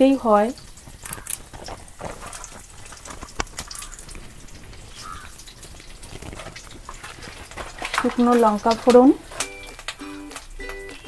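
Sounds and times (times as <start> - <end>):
seeds sizzling in hot oil: 0.0 - 11.0.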